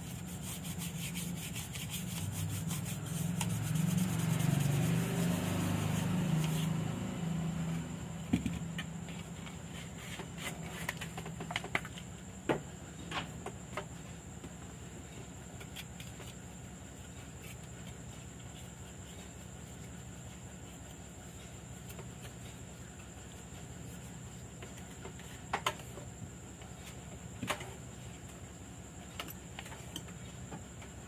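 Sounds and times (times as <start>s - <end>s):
brush scrubbing circuit board: 0.0s - 6.8s
low steady hum: 0.0s - 31.0s.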